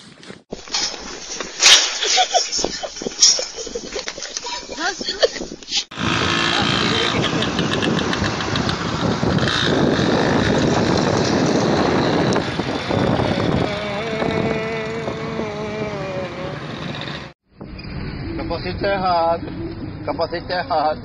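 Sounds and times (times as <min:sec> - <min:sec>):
wind and road noise: 0:00.0 - 0:21.0
traffic: 0:05.7 - 0:21.0
small motorcycle engine: 0:05.9 - 0:17.3
wavering steady tone: 0:17.7 - 0:20.6.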